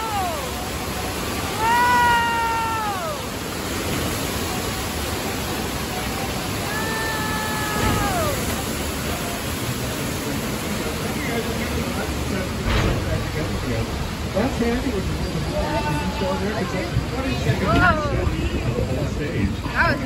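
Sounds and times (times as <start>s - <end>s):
rushing flood water: 0.0s - 20.0s
high voices crying out: 6.6s - 8.6s.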